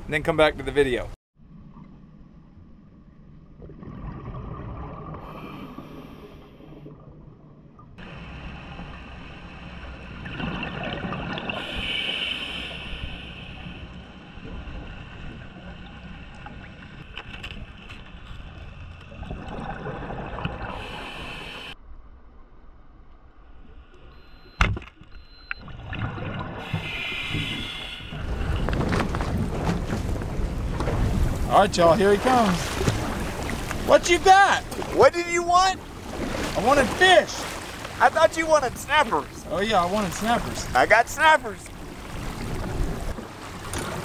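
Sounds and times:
bubbling rushes: 3.5 - 5.4, 10.1 - 12.3, 18.4 - 21.7, 25.6 - 33.9.

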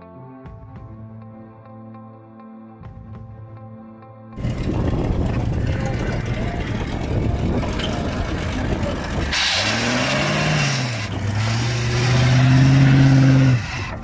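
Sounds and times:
engine revving hard: 4.4 - 14.0
fan belt squealing: 4.4 - 14.0.

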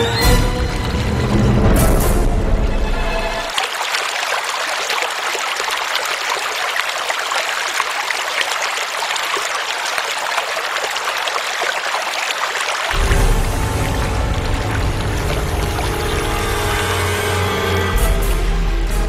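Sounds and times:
music: 0.0 - 3.5, 13.0 - 19.0
stream trickling over stones: 3.4 - 18.0.

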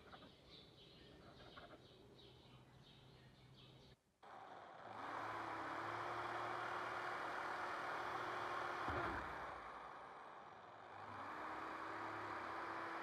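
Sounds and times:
drill press motor humming: 4.3 - 13.0
drill bit boring into wood: 4.9 - 13.0.

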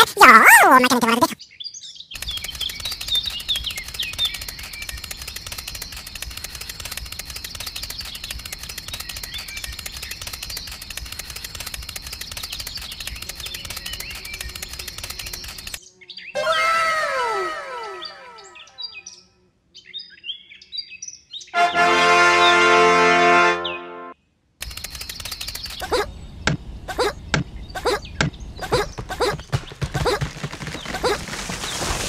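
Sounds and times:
birds chirping: 0.4 - 21.6, 24.6 - 32.0
small electric motor rattling: 2.2 - 15.8, 24.6 - 25.8.

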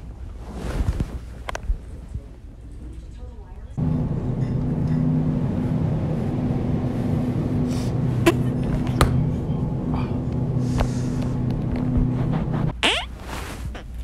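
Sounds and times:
low droning hum: 3.8 - 12.9.

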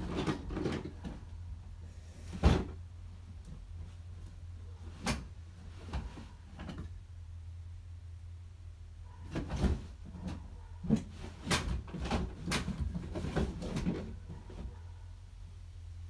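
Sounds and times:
knocks and clatters of rummaging: 0.0 - 1.4, 2.2 - 4.0, 9.2 - 14.9
low steady hum: 0.0 - 16.0.

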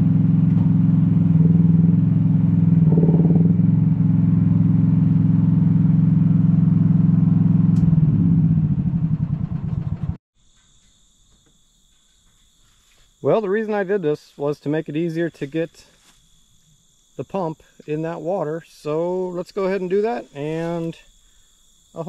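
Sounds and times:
small excavator engine running: 0.0 - 10.2
crickets chirping: 10.4 - 22.0.

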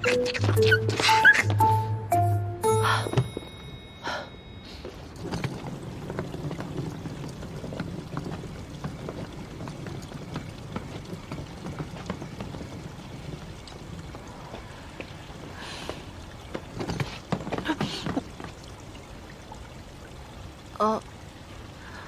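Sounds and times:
suitcase wheels rolling on paving: 4.7 - 19.0.

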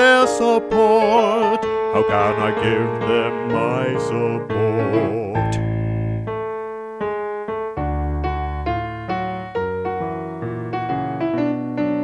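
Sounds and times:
cheerful instrumental melody: 0.0 - 12.0
bass notes: 2.0 - 6.7, 7.5 - 11.8.

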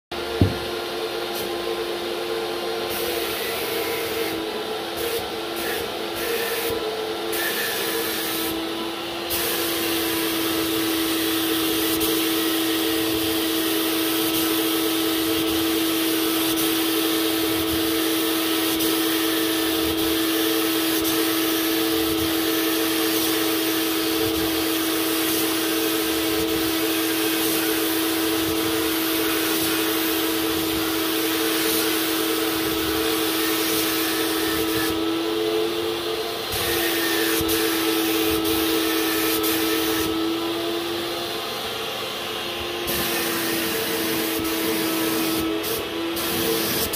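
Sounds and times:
steady compressor hum: 0.1 - 3.4
paint spray gun hissing: 15.2 - 35.0, 36.5 - 40.1, 42.9 - 46.9.

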